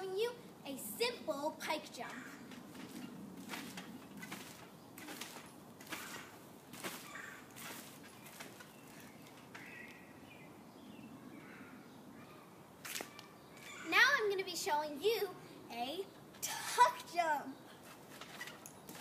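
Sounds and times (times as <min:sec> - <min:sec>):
birds chirping: 0:01.8 - 0:19.0
bounces on a trampoline mat: 0:02.5 - 0:09.6.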